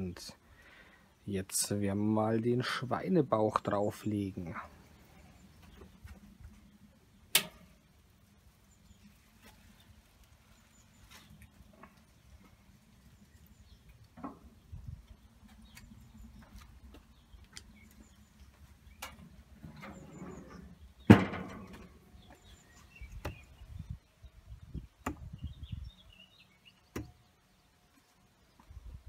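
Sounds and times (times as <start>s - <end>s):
metal lid banging shut: 19.0s - 22.0s.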